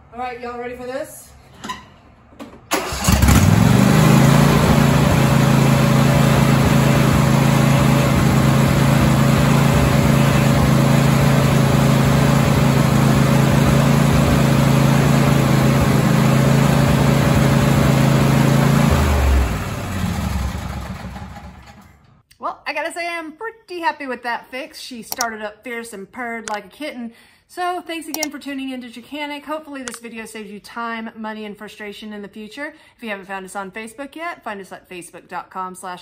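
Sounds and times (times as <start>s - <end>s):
mower engine cranking and running: 2.7s - 22.2s.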